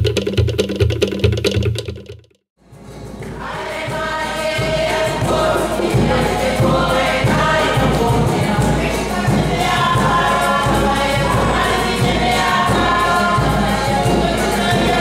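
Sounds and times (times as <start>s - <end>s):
large drum beating: 0.0s - 2.2s
group of voices singing: 3.2s - 15.0s.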